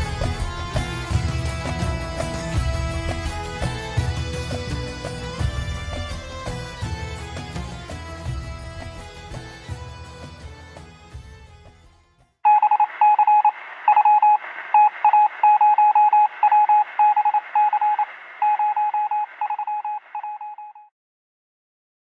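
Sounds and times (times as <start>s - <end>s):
morse-like electronic beeping: 12.5s - 20.8s
radio hiss: 12.8s - 20.2s.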